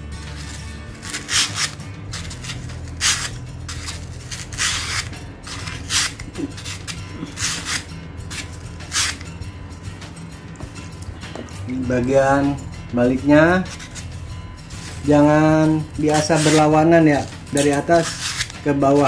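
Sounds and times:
sandpaper rasping on metal blade: 0.2 - 9.3, 13.6 - 19.0.

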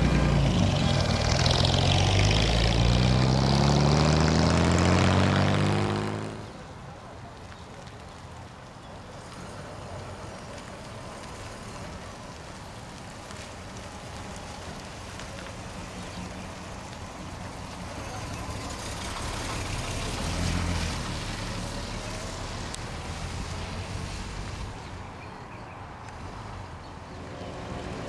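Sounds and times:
truck engine driving past: 0.0 - 6.7, 17.7 - 25.1
tyre noise on wet road: 0.0 - 28.0.

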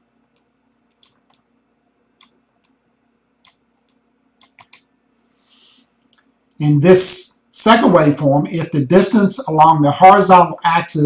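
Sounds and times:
low steady hum: 0.0 - 11.0
computer mouse clicks: 0.3 - 1.5, 2.2 - 2.8, 3.4 - 4.9.

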